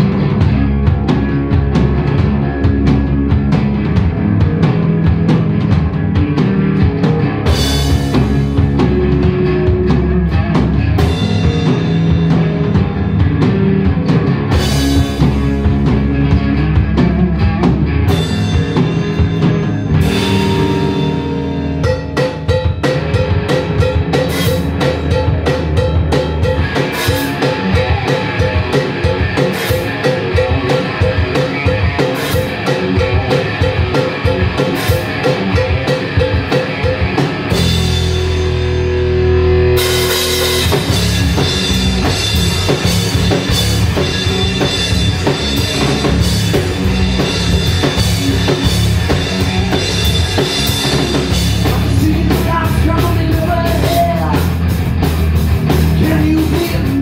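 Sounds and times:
bass guitar: 0.0s - 57.0s
drum kit: 0.0s - 57.0s
electric guitar: 0.0s - 57.0s
person singing: 51.6s - 54.6s, 56.0s - 57.0s.

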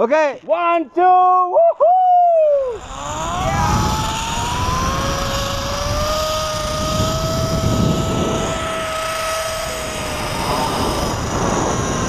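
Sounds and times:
zip-line pulley whine: 1.6s - 12.0s
wind rushing on microphone: 2.7s - 12.0s.

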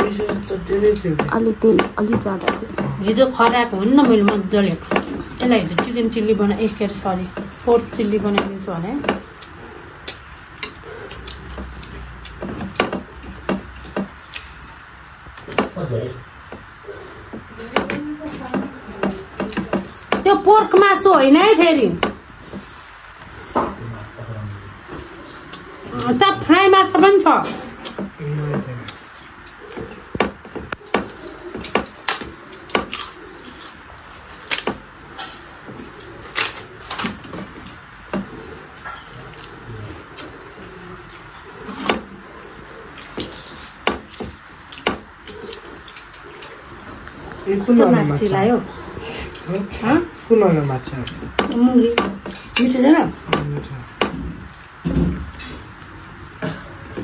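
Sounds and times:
faint low hum: 0.0s - 57.0s
eating by hand clicks and smacks: 8.4s - 15.8s, 24.9s - 26.2s, 28.8s - 40.4s, 41.0s - 47.4s.

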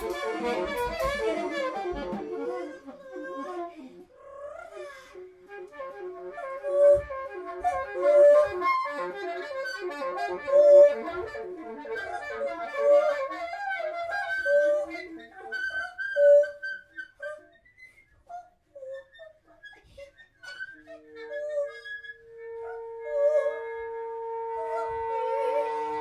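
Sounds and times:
alto saxophone: 0.0s - 4.1s, 4.7s - 15.5s, 22.2s - 26.0s.

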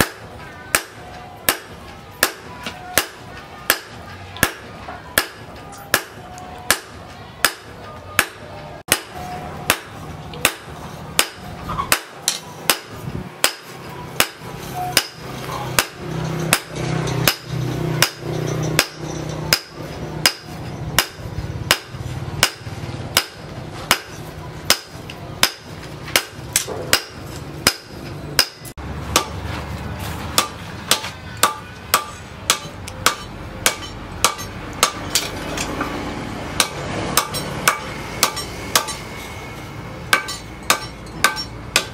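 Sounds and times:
hammer striking steel on anvil: 0.0s - 36.0s, 36.6s - 41.9s.

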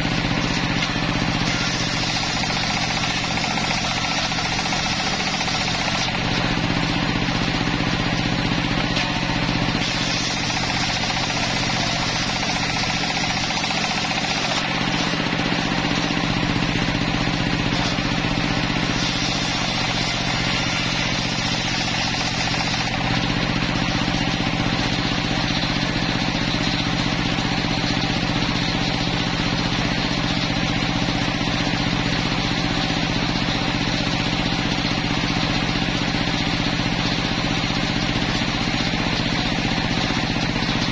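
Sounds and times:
saw ripping through planks: 0.0s - 31.6s
sawmill blade droning: 0.0s - 40.9s.

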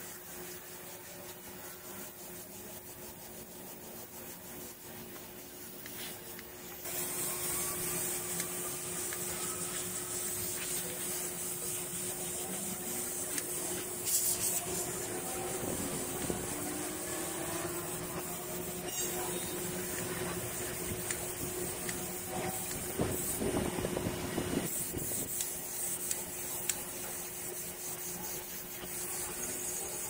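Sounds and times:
machine hissing and humming: 0.0s - 30.0s.

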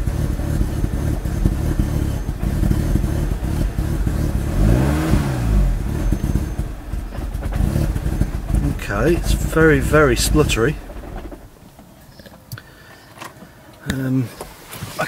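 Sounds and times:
car engine running roughly: 0.0s - 11.8s.

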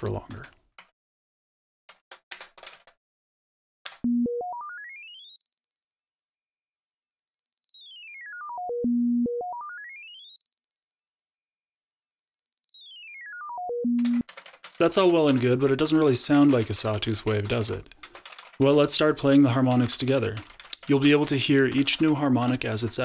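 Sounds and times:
keyboard clicks: 0.0s - 1.0s, 1.9s - 3.0s, 3.9s - 4.1s, 14.0s - 23.0s
sine tones stepping in pitch: 4.1s - 14.2s.

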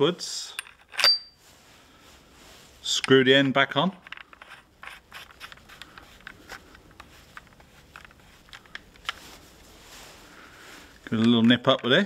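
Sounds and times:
cap threads clicking and scraping: 2.9s - 9.2s.

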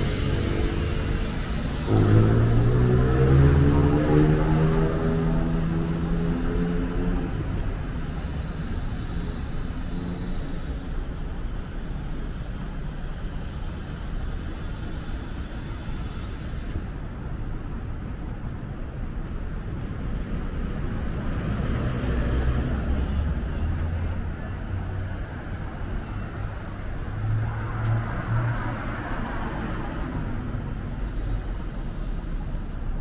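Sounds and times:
vehicle approaching: 0.0s - 11.8s, 19.8s - 33.0s
hum of passing cars: 0.0s - 33.0s.

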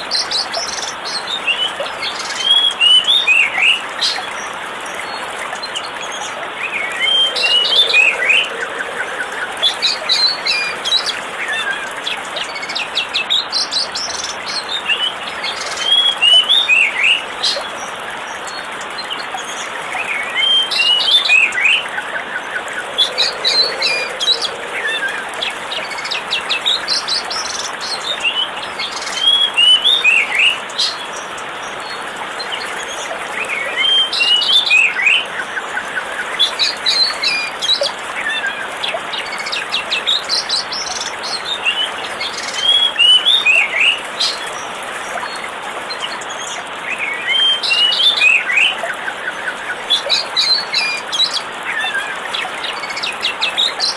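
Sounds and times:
birds chirping: 0.0s - 53.9s
rush of falling water: 0.0s - 53.9s.

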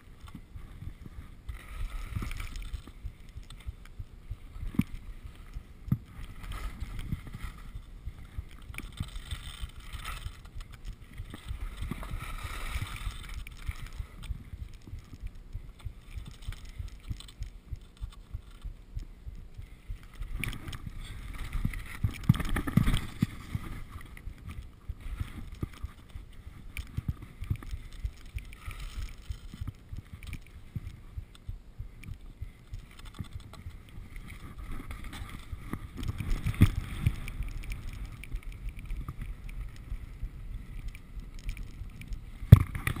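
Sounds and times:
skis scraping over snow: 0.0s - 15.2s.

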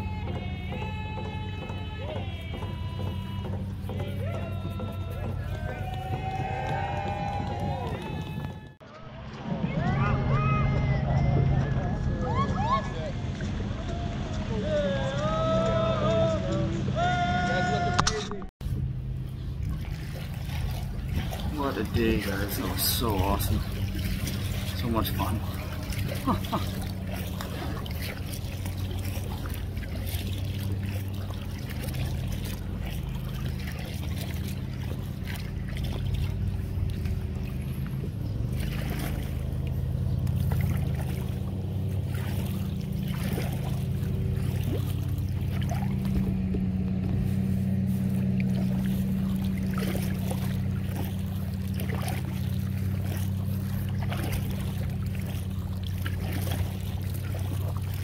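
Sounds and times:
paddle strokes splashing water: 0.0s - 10.0s, 12.3s - 58.0s
steady low hum: 18.6s - 58.0s.

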